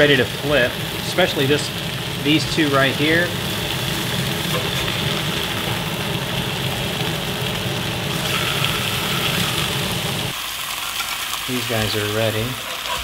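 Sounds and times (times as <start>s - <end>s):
fish sizzling in hot oil: 0.0s - 13.0s
low mechanical hum: 0.2s - 10.4s.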